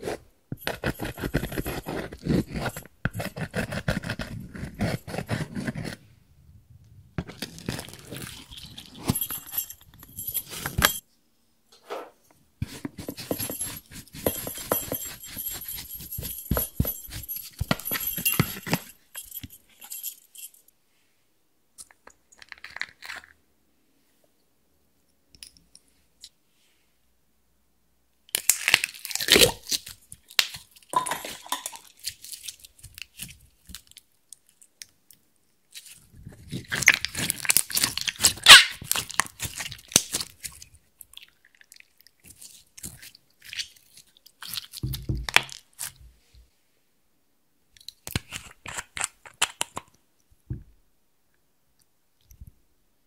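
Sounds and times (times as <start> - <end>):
makeup crunching and crackling: 7.2 - 10.9, 12.7 - 18.9, 35.7 - 46.0, 47.8 - 49.9.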